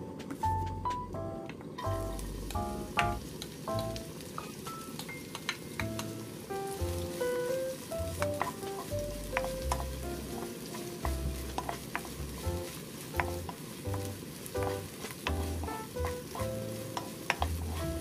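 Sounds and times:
onion sizzling in oil: 1.7 - 18.0
wooden spoon scraping a wok: 5.9 - 18.0.

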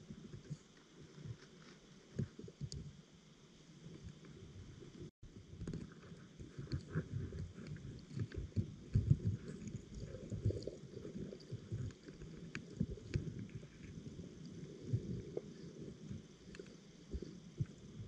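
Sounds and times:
rumbling of moving water: 3.8 - 18.0
muffled underwater thumps: 5.4 - 13.8.

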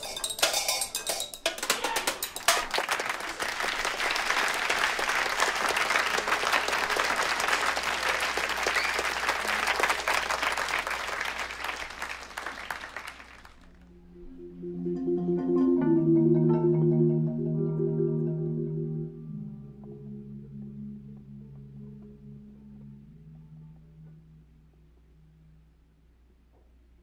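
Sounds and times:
sticks striking bottles and plates: 0.0 - 2.7
audience applauding: 1.6 - 13.8.

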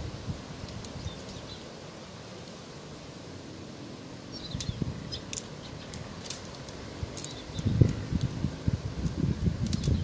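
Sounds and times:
wind rumbling on microphone: 0.0 - 1.5, 4.3 - 10.0
tent pole sections clicking: 0.6 - 1.4, 4.6 - 8.4, 9.0 - 10.0
bird chirping: 1.0 - 1.7, 4.3 - 6.1, 7.2 - 8.1.

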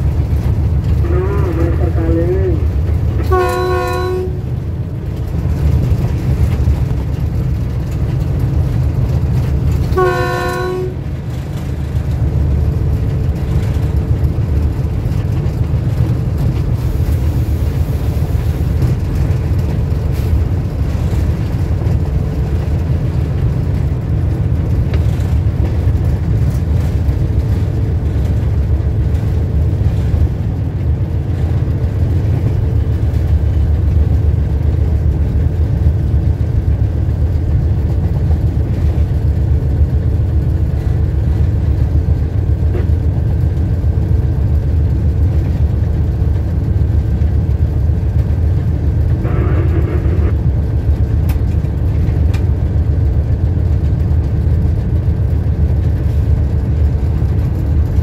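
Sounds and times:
train rumble: 0.0 - 58.0
locomotive horn blasts: 1.0 - 2.6, 3.2 - 4.6, 9.9 - 11.1, 49.0 - 50.4.

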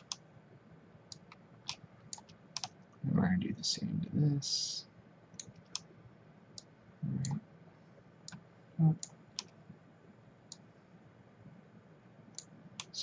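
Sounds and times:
computer mouse clicking: 0.0 - 0.2, 1.1 - 2.8, 5.4 - 5.9, 9.0 - 9.6, 12.3 - 12.9.

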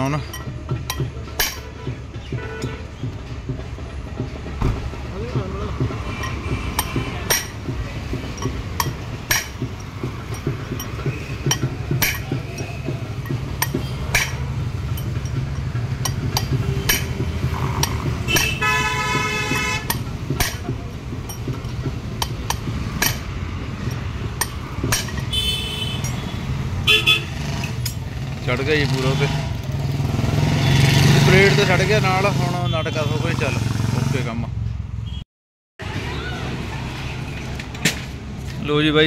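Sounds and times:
traffic drone: 0.0 - 35.2, 35.8 - 39.0
vehicle horn: 17.6 - 20.0, 25.3 - 27.4.

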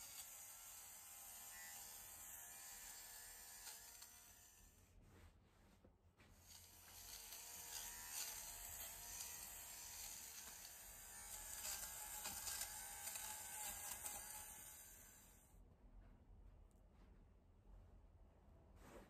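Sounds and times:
electric lint remover buzzing: 0.0 - 4.7, 6.4 - 15.4.

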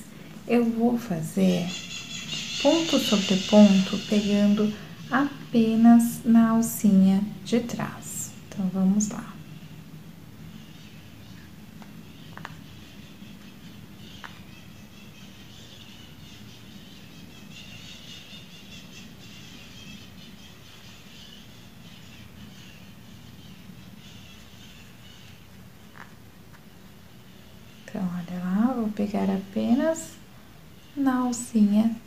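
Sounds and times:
faint high hiss: 0.0 - 32.0
steady low hum: 0.0 - 32.0.

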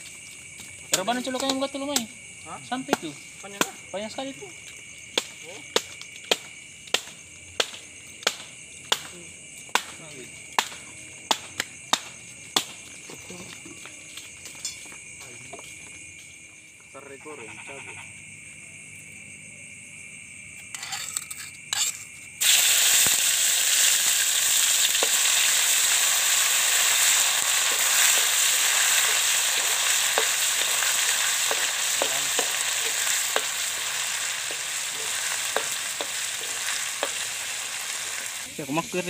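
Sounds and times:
food sizzling in hot oil: 20.8 - 39.0.

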